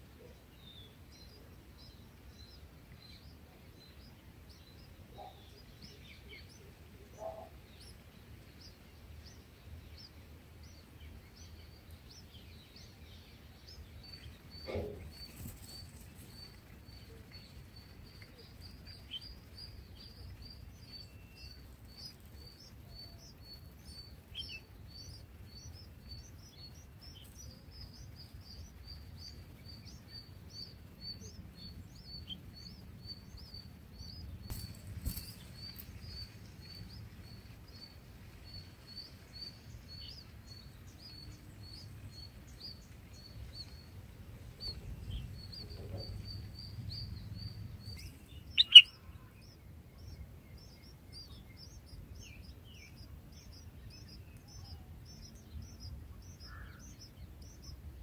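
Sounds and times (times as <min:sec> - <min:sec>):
nestlings chirping: 0:00.1 - 0:58.0
loud sharp bird call: 0:48.5 - 0:49.1.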